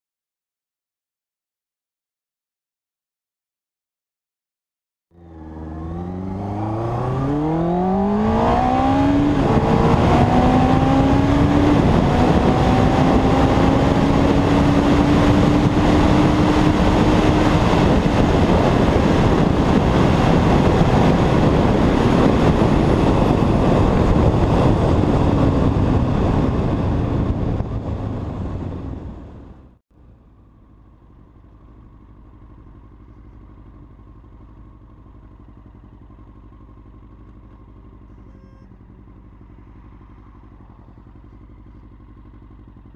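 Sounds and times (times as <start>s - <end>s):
motorcycle engine accelerating hard: 5.1s - 42.9s
heavy wind noise: 6.4s - 29.7s.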